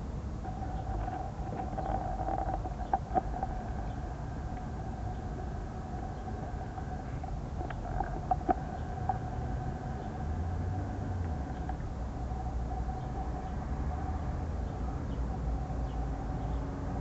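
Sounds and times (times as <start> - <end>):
low rumble: 0.0 - 17.0
steady hum: 0.0 - 17.0
tortoises crunching lettuce: 0.4 - 11.9.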